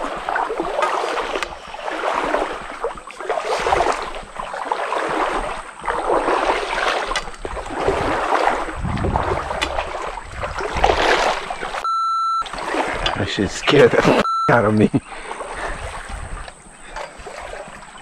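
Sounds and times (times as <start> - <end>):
running splashing water: 0.0 - 18.0
wind rumble on microphone: 5.1 - 11.5, 15.6 - 17.5.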